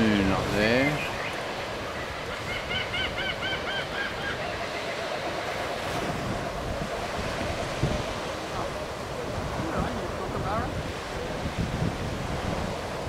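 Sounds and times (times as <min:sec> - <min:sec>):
small waves on shore: 0:00.0 - 0:13.0
wind buffeting microphone: 0:00.0 - 0:13.0
bird calls: 0:00.4 - 0:08.4.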